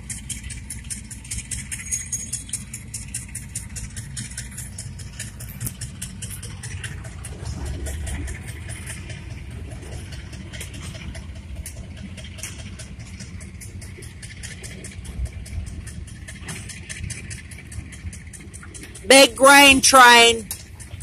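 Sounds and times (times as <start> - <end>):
car engine and road rumble: 0.0 - 21.0.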